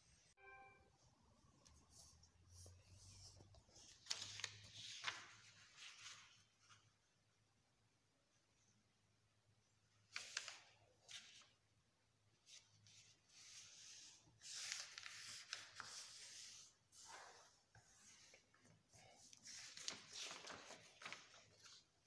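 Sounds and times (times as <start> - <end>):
paper rustling on wooden table: 3.0 - 6.8, 12.5 - 18.5, 19.3 - 21.9
paper crackling: 3.2 - 6.6, 14.4 - 17.4, 19.4 - 21.9.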